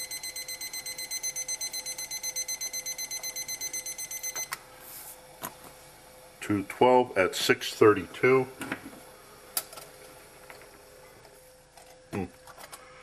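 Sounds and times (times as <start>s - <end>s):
thermometer alarm beeping: 0.0s - 4.6s.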